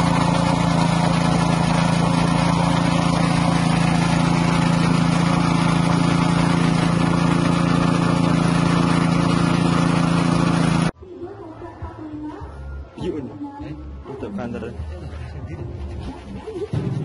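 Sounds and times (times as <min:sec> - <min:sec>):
extruder machine humming: 0:00.0 - 0:11.0.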